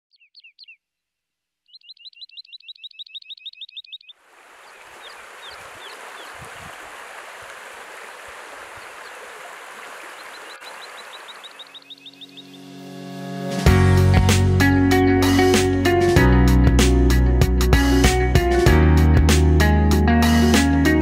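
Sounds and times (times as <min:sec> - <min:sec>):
bird rapid repeated chirps: 0:01.6 - 0:06.5, 0:08.6 - 0:12.7
scattered bird chirps: 0:01.6 - 0:06.6, 0:08.3 - 0:12.7
stream running over stones: 0:04.2 - 0:11.8.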